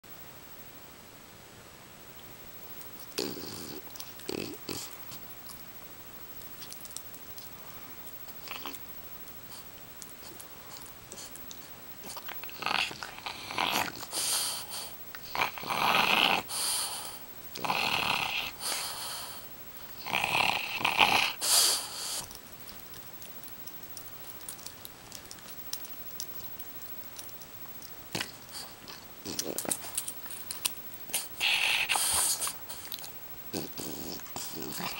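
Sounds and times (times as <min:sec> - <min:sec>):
small rustles and ticks: 0:02.1 - 0:13.2, 0:21.8 - 0:34.9
dog grunting and growling: 0:03.1 - 0:05.2, 0:08.4 - 0:08.8, 0:12.0 - 0:22.3, 0:28.1 - 0:30.1, 0:31.1 - 0:34.9.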